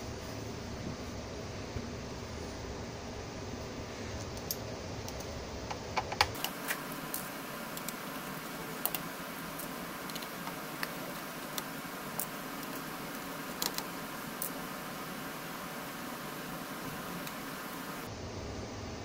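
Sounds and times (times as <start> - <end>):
steady hiss: 0.0 - 19.0
screwdriver and screws clicking: 6.2 - 14.6.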